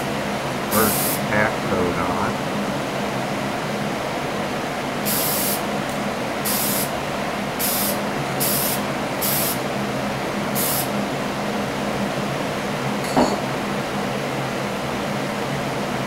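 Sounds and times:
steady low hum: 0.0s - 16.0s
spray paint hissing bursts: 0.7s - 1.2s, 5.0s - 5.6s, 6.4s - 6.9s, 7.6s - 9.6s, 10.6s - 10.9s.

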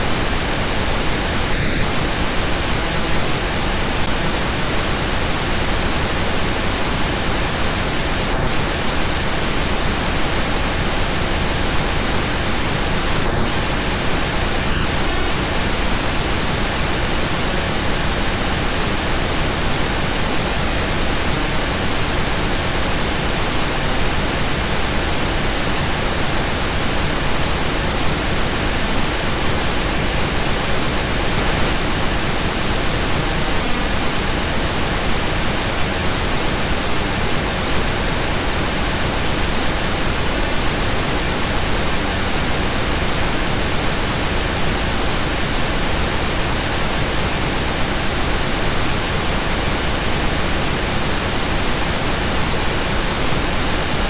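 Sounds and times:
steady noise hiss: 0.0s - 54.0s.

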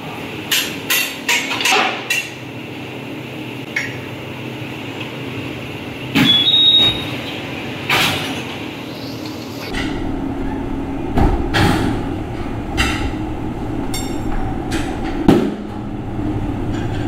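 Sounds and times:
steady hum: 8.7s - 17.0s
sharp knocks and clanks: 11.0s - 15.8s.

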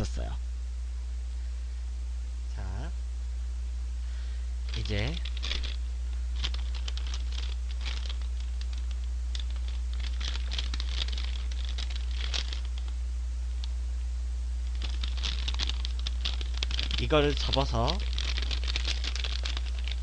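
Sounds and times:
steady low hum: 0.0s - 20.0s
paper bag crinkling: 4.7s - 5.8s, 6.4s - 12.9s, 14.7s - 20.0s.

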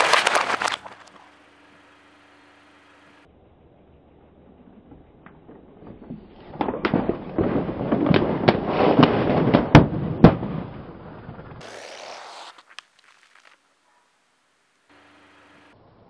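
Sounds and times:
plastic bottles crunching under tyre: 0.0s - 1.3s, 11.6s - 13.6s
sharp bursting pops: 11.3s - 13.7s
short hiss: 11.6s - 13.6s.

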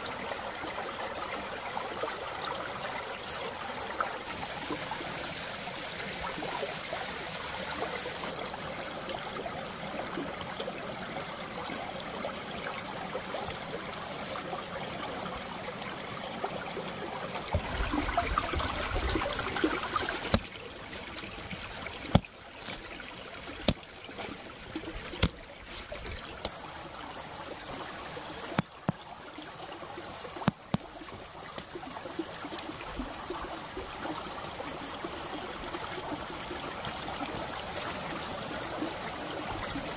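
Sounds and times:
stream trickling over stones: 0.0s - 39.9s.

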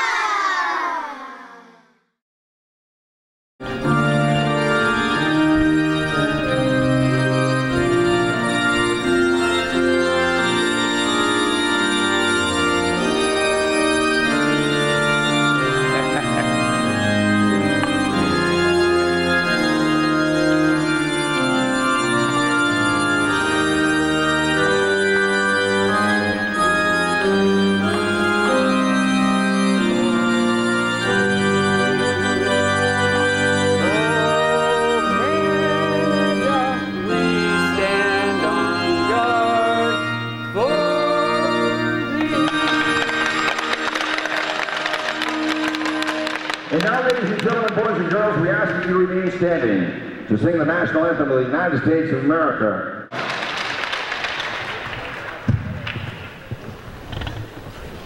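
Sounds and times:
organ playing sustained chords: 3.6s - 55.4s.

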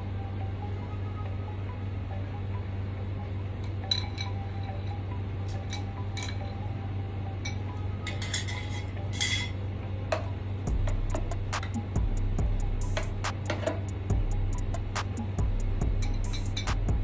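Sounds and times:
steady low hum: 0.0s - 17.0s
utensils clinking against bowl: 3.8s - 6.5s, 7.4s - 10.3s, 16.1s - 16.8s.

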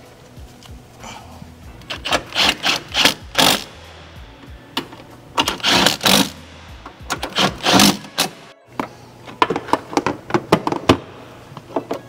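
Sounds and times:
impact driver driving bolt: 1.8s - 3.7s, 4.8s - 6.4s, 7.0s - 8.4s.

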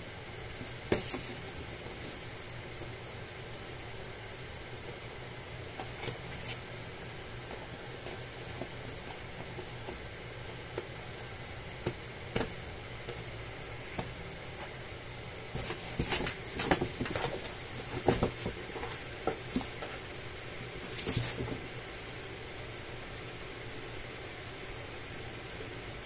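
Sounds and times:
steady hiss: 0.0s - 26.0s
cats scratching cardboard box: 0.4s - 3.0s, 4.8s - 21.7s.

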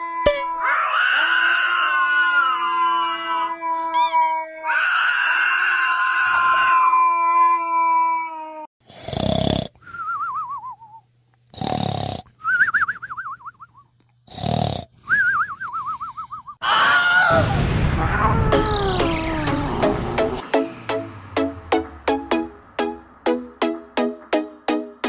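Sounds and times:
cartoon snoring: 8.8s - 9.8s, 11.5s - 12.3s, 14.3s - 14.9s.

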